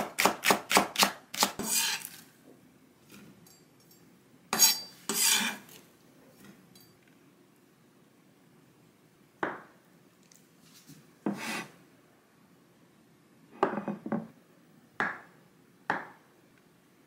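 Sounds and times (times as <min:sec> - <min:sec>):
knife chopping on wooden board: 0:00.0 - 0:02.0
knife scraping across board: 0:01.4 - 0:02.2, 0:04.5 - 0:05.8, 0:11.3 - 0:11.8.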